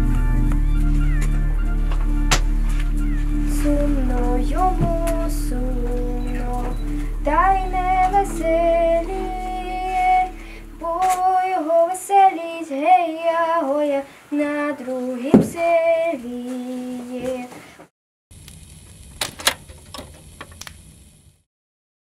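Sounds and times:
low steady hum: 0.0 - 13.5, 18.3 - 21.4
woman singing folk song: 3.5 - 17.7.

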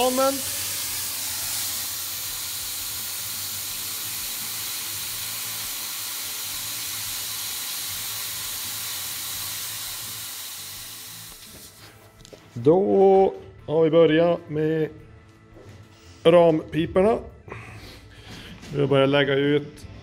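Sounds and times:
grinder cutting steel: 0.0 - 11.8.

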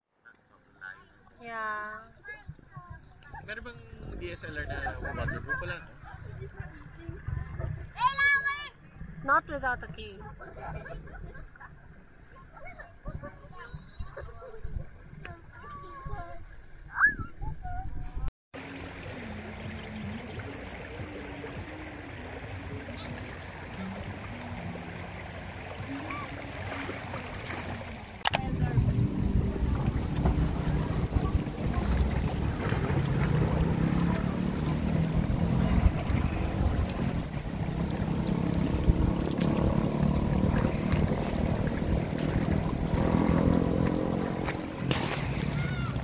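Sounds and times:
shallow river water flowing: 0.2 - 17.0, 18.5 - 46.0
wind on microphone: 2.4 - 11.6, 12.6 - 18.3, 19.6 - 46.0
car engine running: 28.2 - 45.5.

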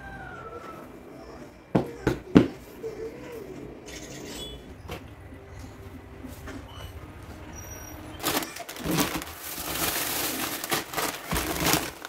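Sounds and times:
plastic bag rustling: 6.2 - 12.0.

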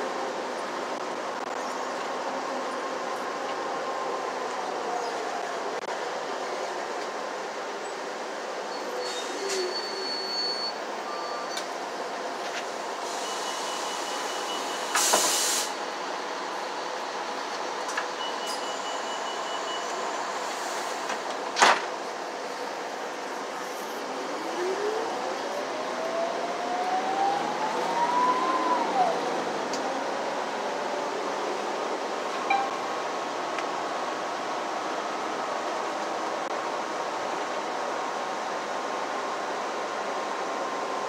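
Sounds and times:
bus engine and road noise: 0.0 - 41.0
air brake hiss: 9.0 - 9.8, 13.0 - 15.8, 20.4 - 21.1
rising whine: 23.9 - 31.7.

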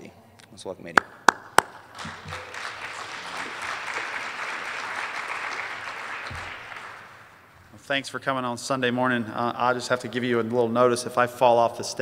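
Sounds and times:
audience applauding: 1.0 - 7.5.

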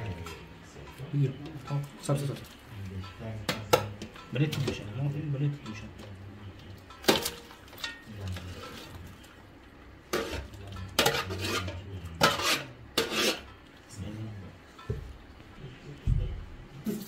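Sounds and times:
plastic ladle scraping a pot: 10.1 - 13.5.

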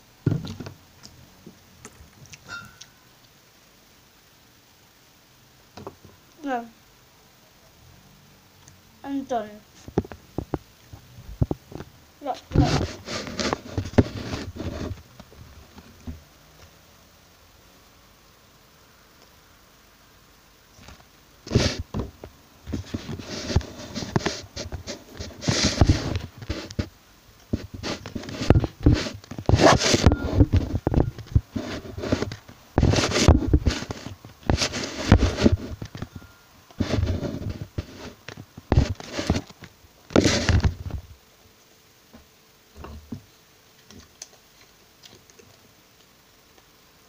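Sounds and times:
objects scraping and rustling: 9.3 - 16.7, 20.7 - 41.2.

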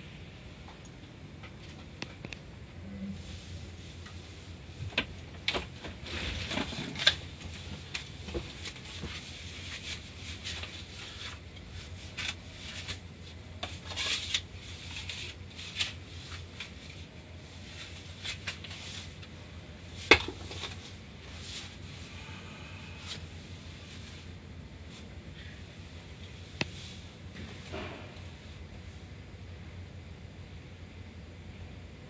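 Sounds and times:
low steady hum: 0.0 - 32.0.

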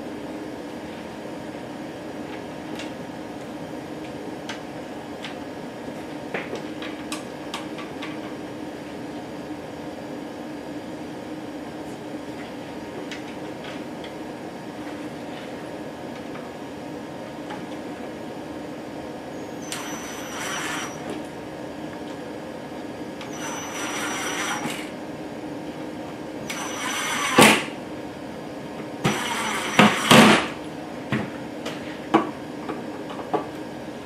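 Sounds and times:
cordless drill motor whine: 19.4 - 21.1, 23.2 - 25.0, 26.4 - 27.7, 29.0 - 30.4.

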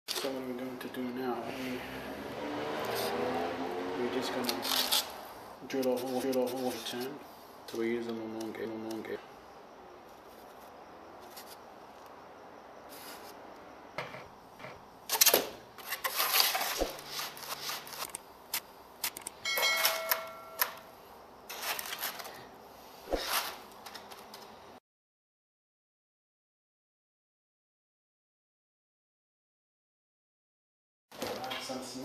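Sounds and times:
styrofoam rustling and scraping: 15.2 - 18.1, 21.5 - 22.4.

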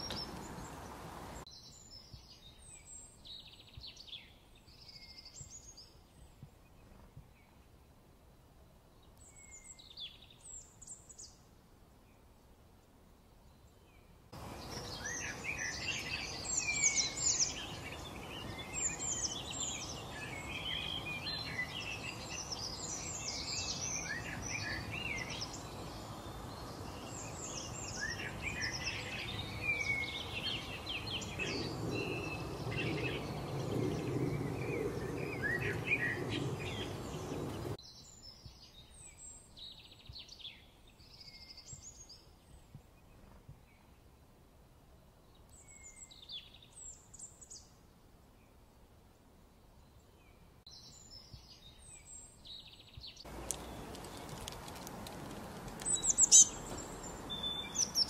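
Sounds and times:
songbirds chirping and singing: 0.0 - 7.6, 13.5 - 43.9, 49.8 - 58.0.

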